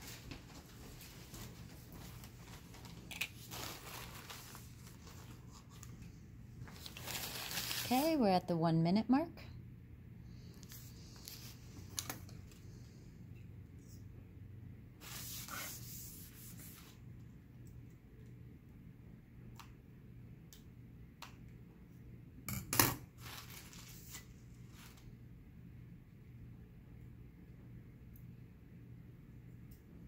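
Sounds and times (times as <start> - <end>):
soft rustle: 0.0 - 8.2
steady low hum: 8.4 - 22.7.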